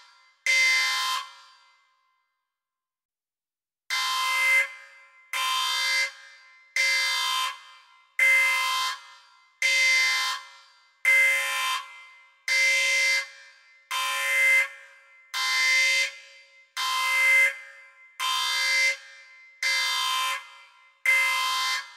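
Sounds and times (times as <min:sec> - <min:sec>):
horn-like electronic alarm blasts: 0:14.0 - 0:21.9.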